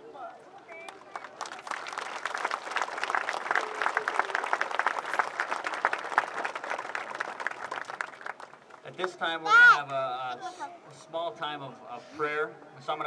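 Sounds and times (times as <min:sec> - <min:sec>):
crowd applauding: 0:00.6 - 0:09.2.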